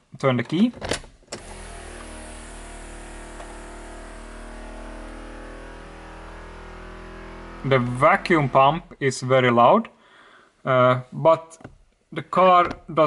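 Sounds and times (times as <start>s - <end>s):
vacuum pump motor hum: 1.4s - 8.8s.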